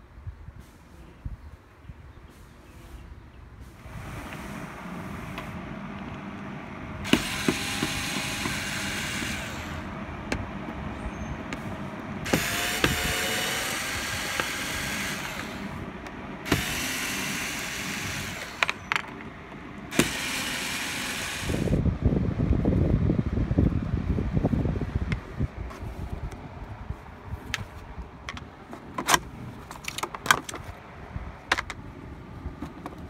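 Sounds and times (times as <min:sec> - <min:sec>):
electric screwdriver running: 0:07.0 - 0:09.9, 0:12.3 - 0:15.8, 0:16.4 - 0:18.9, 0:19.9 - 0:21.8.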